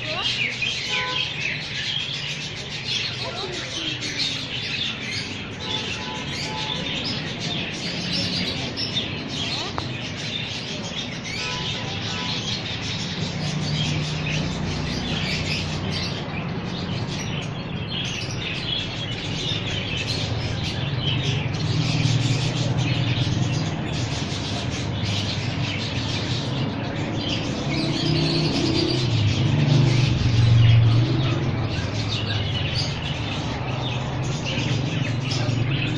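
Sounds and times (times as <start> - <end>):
small birds chirping: 0.0 - 35.9.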